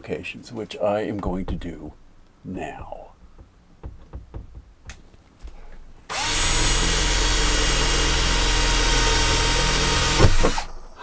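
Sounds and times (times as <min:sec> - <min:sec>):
cordless drill drilling: 0:06.1 - 0:10.7.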